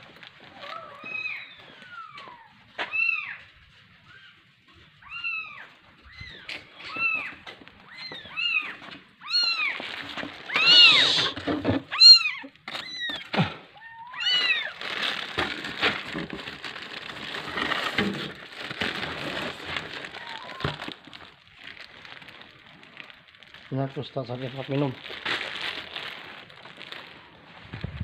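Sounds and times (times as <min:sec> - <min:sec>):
kitten meowing: 0:00.6 - 0:03.4, 0:05.0 - 0:09.8, 0:10.5 - 0:14.8, 0:20.2 - 0:20.9
dry cat food poured from bag: 0:09.2 - 0:28.0.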